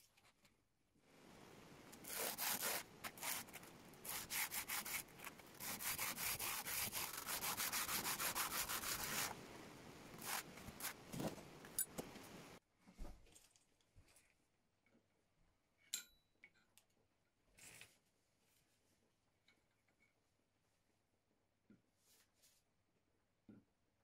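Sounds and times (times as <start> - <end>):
knife blade rubbing on sandpaper: 2.0 - 9.4, 10.2 - 11.0.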